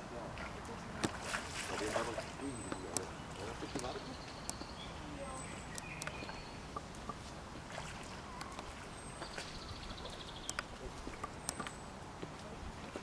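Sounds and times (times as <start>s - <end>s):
small sharp splashes: 0.3s - 4.7s, 5.6s - 11.8s
water sloshing and dripping: 0.3s - 4.7s, 5.6s - 13.0s.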